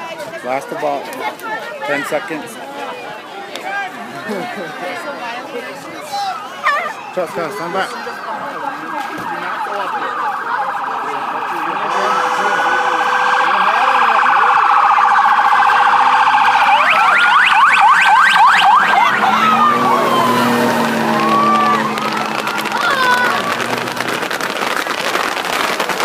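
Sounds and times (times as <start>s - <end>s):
police sirens wailing: 6.2s - 26.0s.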